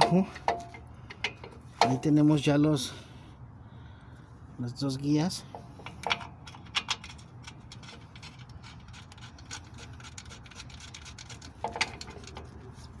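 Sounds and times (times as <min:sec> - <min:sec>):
low steady hum: 0:00.0 - 0:13.0
light rubbing of metal part: 0:05.6 - 0:13.0
small metal clicks: 0:05.8 - 0:12.5.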